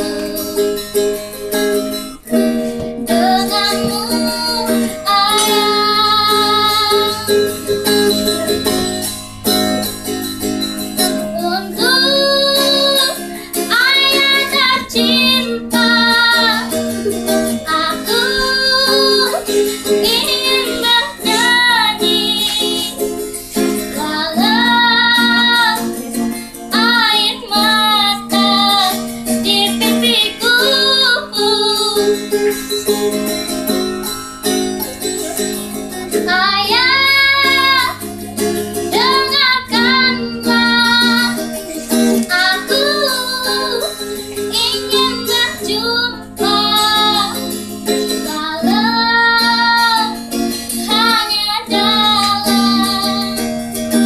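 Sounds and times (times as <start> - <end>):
girl singing: 0.0 - 54.0
ukulele strumming chords: 0.0 - 54.0.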